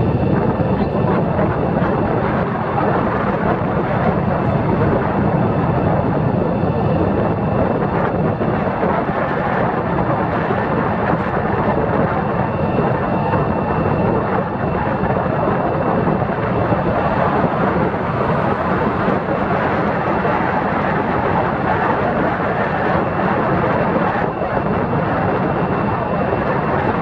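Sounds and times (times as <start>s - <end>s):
faint steady whine: 0.0s - 27.0s
wind over microphone: 0.0s - 27.0s
road noise: 14.8s - 23.1s.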